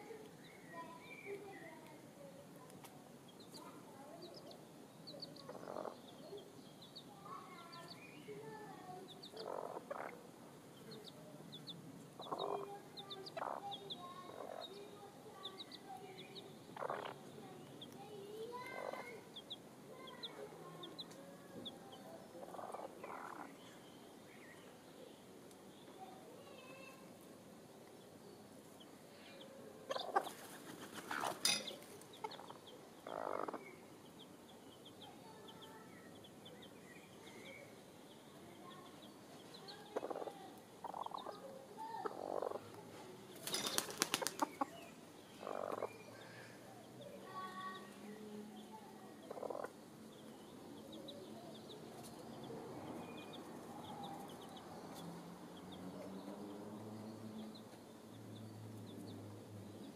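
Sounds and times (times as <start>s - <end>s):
soft chicken clucks and peeps: 0.0s - 59.9s
chickens rustling in dirt: 30.0s - 32.2s, 42.7s - 44.9s.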